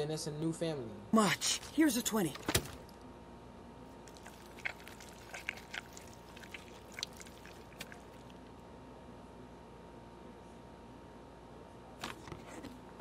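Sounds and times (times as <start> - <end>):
wet drips and squelches: 1.4 - 3.0, 4.0 - 8.6.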